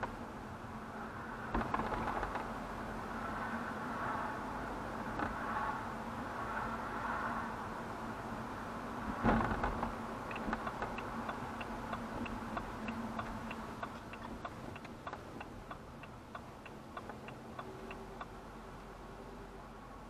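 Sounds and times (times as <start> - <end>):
low engine and road hum: 0.0 - 20.0
car turn indicator ticking: 10.3 - 18.4.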